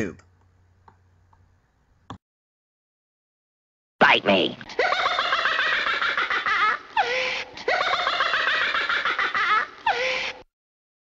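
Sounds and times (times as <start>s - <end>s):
person laughing: 4.7s - 10.4s.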